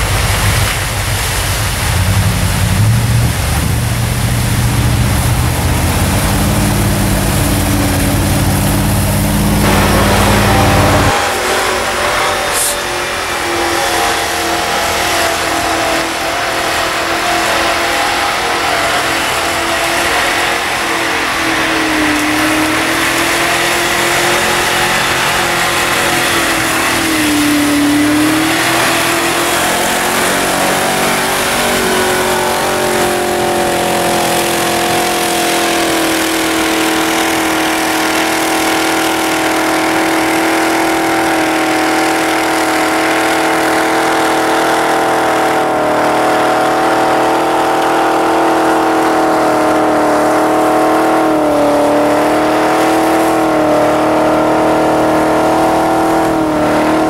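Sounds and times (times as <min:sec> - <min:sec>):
engine revving high: 0:00.0 - 0:57.0.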